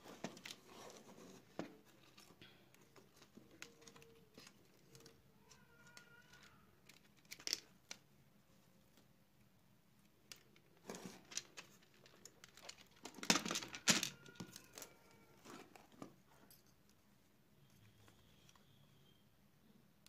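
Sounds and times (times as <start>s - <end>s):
plastic and metal parts clicking: 2.0s - 8.0s, 10.3s - 14.9s
faint ringing tone: 17.6s - 19.8s.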